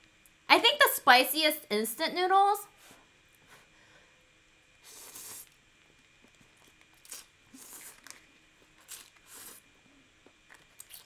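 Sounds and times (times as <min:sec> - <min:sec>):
person slurping noodles: 0:04.8 - 0:05.5, 0:07.1 - 0:08.1, 0:08.9 - 0:09.7
person chewing: 0:06.4 - 0:09.7, 0:10.5 - 0:11.0.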